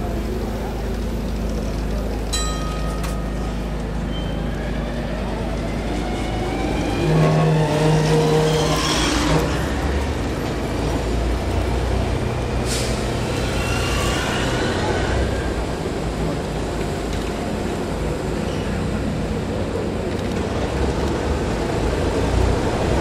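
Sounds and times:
tram wheels rumbling on rails: 0:00.0 - 0:23.0
wheels squealing on curve: 0:06.7 - 0:10.0, 0:13.2 - 0:15.6.

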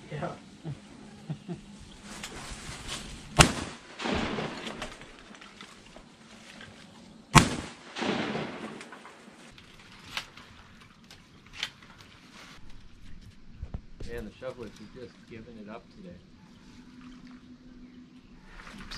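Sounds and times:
shotgun shots: 0:03.4 - 0:05.3, 0:07.3 - 0:09.5
faint sharp cracks: 0:03.4 - 0:06.0, 0:07.3 - 0:12.1.

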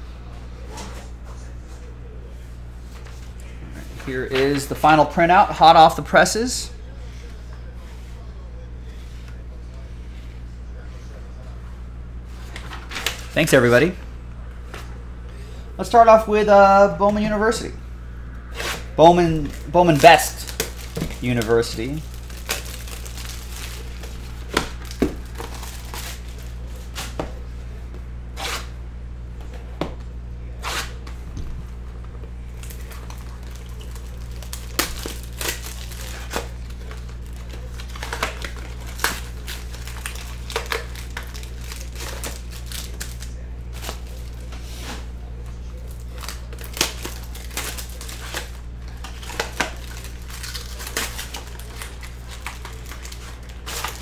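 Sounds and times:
low hum: 0:06.6 - 0:54.0
paper wrappers tearing: 0:18.5 - 0:27.2, 0:32.5 - 0:45.1, 0:45.7 - 0:54.0
cellophane crinkling: 0:18.9 - 0:27.2, 0:32.5 - 0:44.8, 0:45.6 - 0:54.0.

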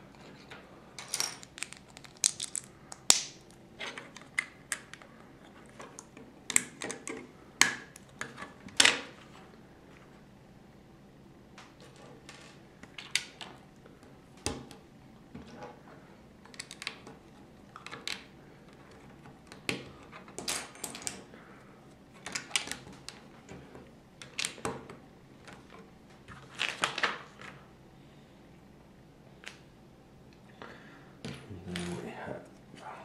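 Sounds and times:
plastic bricks clicking and clattering: 0:01.0 - 0:03.2.

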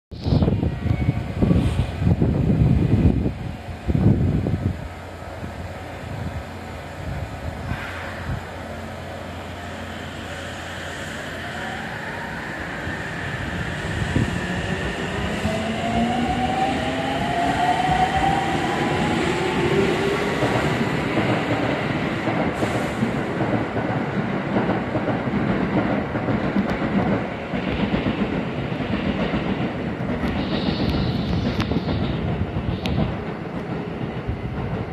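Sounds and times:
train wheels rumbling and clattering: 0:00.9 - 0:34.9
electric train motor whine: 0:30.2 - 0:33.1.

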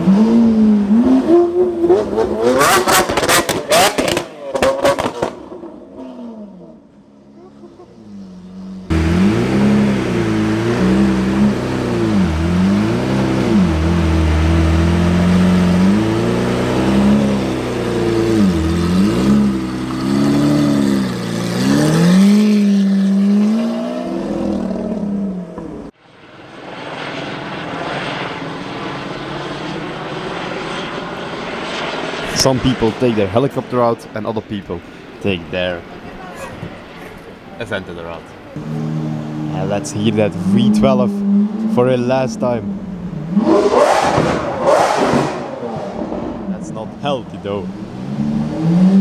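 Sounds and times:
car engine revving: 0:00.0 - 0:26.0, 0:37.7 - 0:49.0
helicopter drone: 0:26.0 - 0:38.0.

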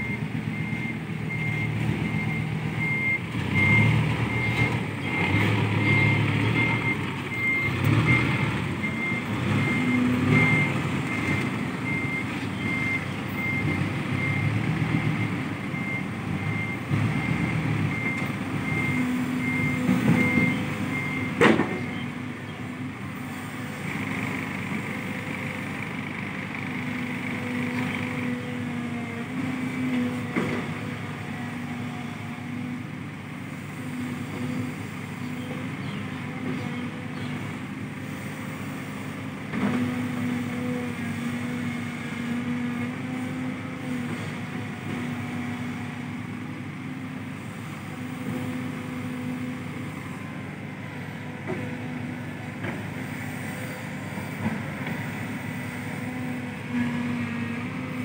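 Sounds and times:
excavator diesel engine running: 0:00.0 - 0:58.0.

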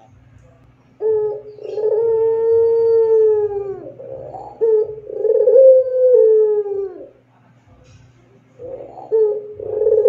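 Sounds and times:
dove cooing: 0:00.9 - 0:07.3, 0:08.5 - 0:10.0.

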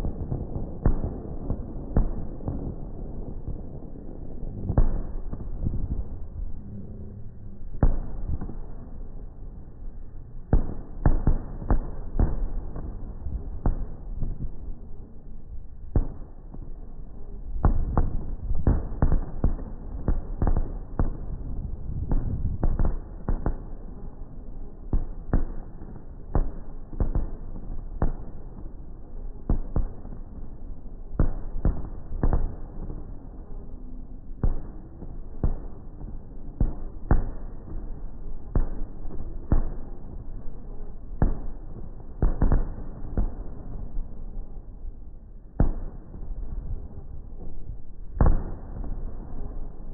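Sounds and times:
low rumble: 0:00.0 - 0:25.1.

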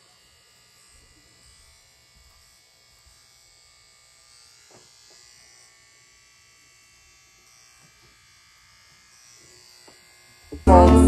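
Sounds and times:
hair trimmer buzzing: 0:00.0 - 0:11.0
light knocks of trimmer: 0:04.6 - 0:05.3.

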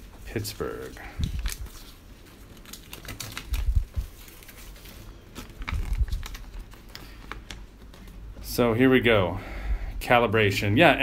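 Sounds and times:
paper crackling and rustling: 0:00.0 - 0:08.4.

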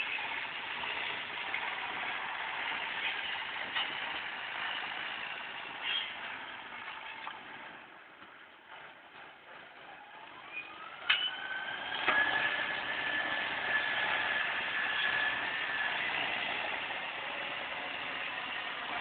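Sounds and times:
tractor diesel engine revving: 0:09.6 - 0:19.0.

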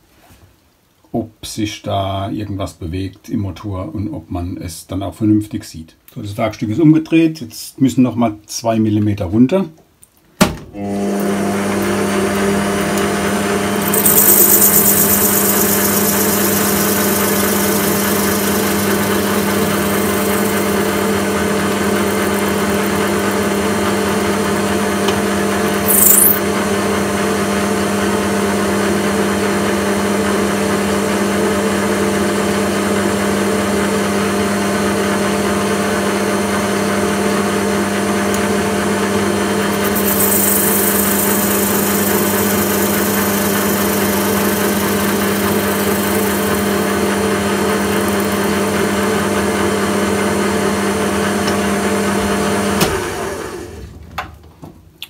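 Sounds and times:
metal lathe humming: 0:11.8 - 0:26.4, 0:39.5 - 0:52.0.

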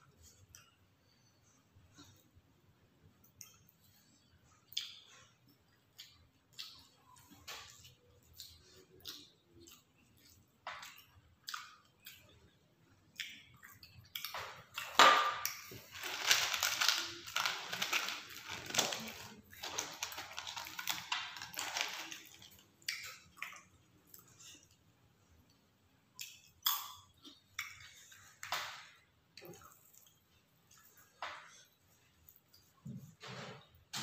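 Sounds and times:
eating clicks and smacks: 0:03.2 - 0:04.0, 0:04.6 - 0:18.5, 0:19.4 - 0:24.8, 0:25.4 - 0:31.5
loud crackling and rustling: 0:15.7 - 0:22.6.

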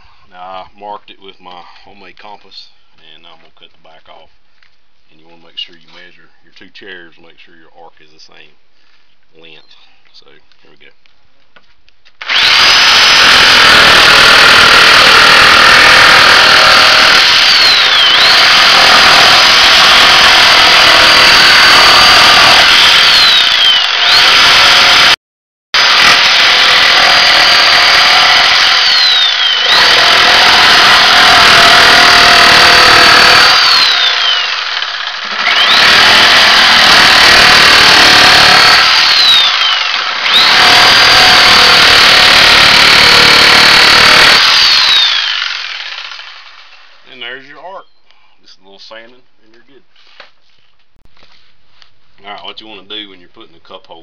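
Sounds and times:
jigsaw cutting wood: 0:12.2 - 0:25.2, 0:25.8 - 0:46.9.

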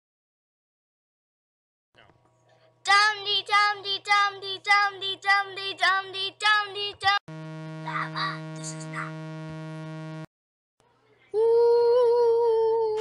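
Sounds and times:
steady buzzing tone: 0:07.3 - 0:10.3.

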